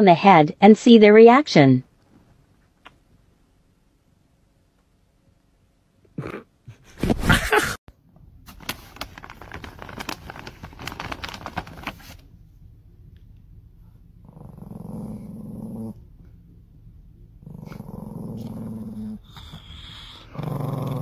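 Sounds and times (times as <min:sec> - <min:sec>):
small dog growling: 0:14.2 - 0:16.1, 0:17.4 - 0:21.0.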